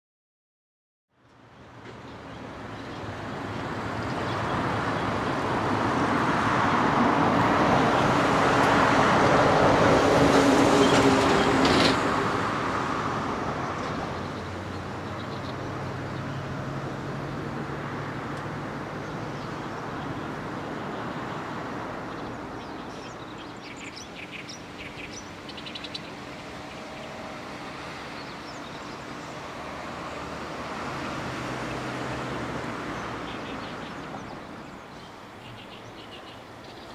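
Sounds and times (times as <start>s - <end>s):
traffic hum: 1.2s - 36.9s
heavy vehicle passing: 2.4s - 36.7s.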